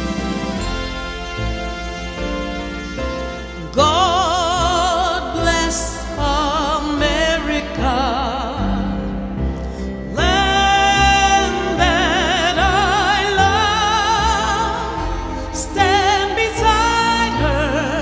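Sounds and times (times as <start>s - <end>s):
instrumental accompaniment: 0.0s - 18.0s
woman singing with vibrato: 3.6s - 9.3s, 10.1s - 18.0s.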